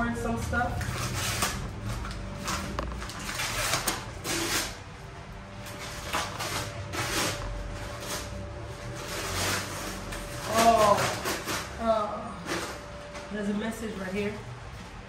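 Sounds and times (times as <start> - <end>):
paper rustling and crinkling: 0.2 - 11.8.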